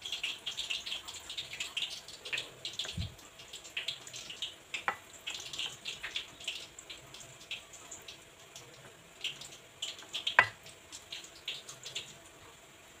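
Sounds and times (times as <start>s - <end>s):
spatula stirring wet food: 0.3s - 12.2s
spatula knocking on plate: 10.4s - 10.6s.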